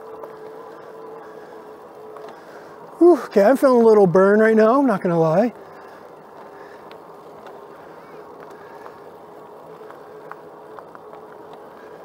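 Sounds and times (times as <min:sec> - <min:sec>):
faint ticks: 0:00.0 - 0:02.9, 0:05.5 - 0:12.0
electric motor whining: 0:00.0 - 0:12.0.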